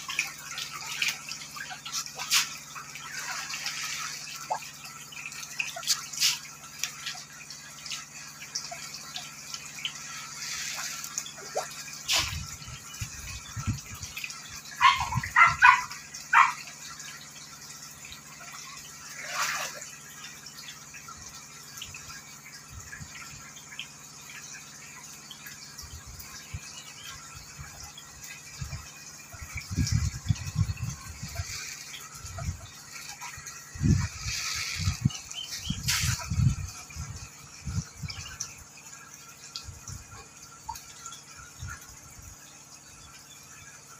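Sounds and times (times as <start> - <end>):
water splashing from thrashing fish: 0.0 - 9.3, 10.0 - 13.4.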